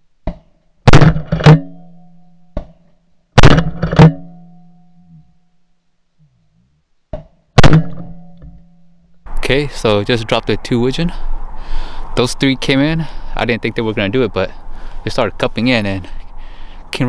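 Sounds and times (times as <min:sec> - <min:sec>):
shotgun blasts: 0:00.8 - 0:01.7, 0:03.4 - 0:04.3, 0:07.6 - 0:08.2
low steady musical tone: 0:01.5 - 0:06.7, 0:07.8 - 0:09.4.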